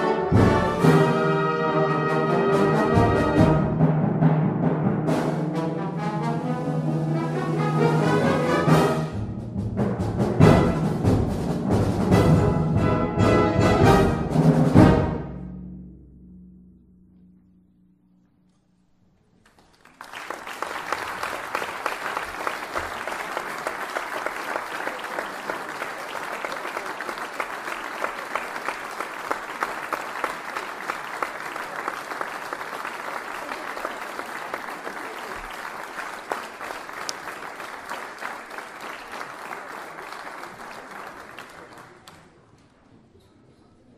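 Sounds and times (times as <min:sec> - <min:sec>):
audience applause: 0:19.4 - 0:42.6.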